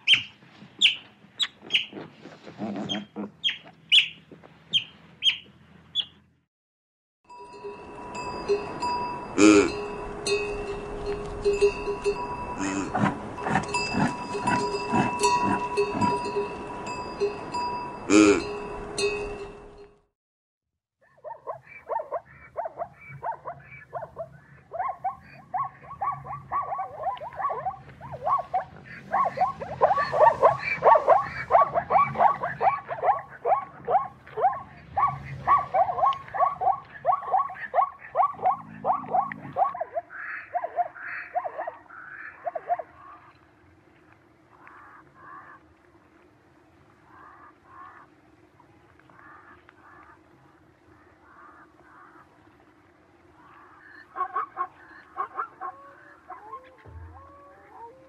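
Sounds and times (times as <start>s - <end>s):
zebra barking yelps: 0.0s - 2.0s, 2.7s - 5.4s, 21.0s - 43.3s, 53.7s - 58.0s.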